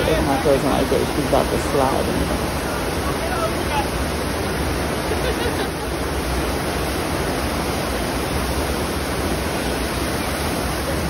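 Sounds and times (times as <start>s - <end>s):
rush of streaming water: 0.0s - 11.0s.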